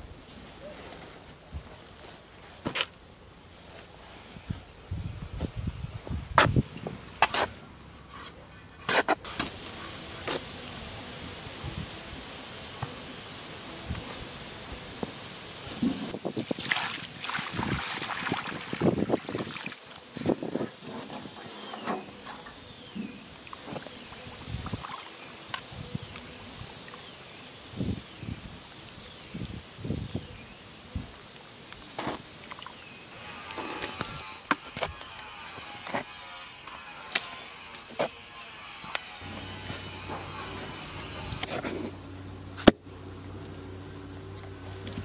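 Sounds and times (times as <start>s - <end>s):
water pouring: 16.4s - 20.0s
water sloshing and splashing: 16.4s - 20.0s.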